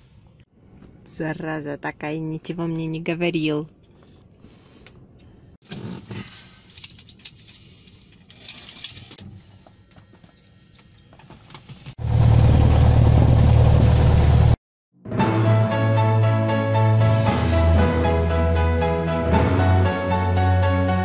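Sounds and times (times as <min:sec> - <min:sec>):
aircraft engine and propeller: 0:12.0 - 0:14.6.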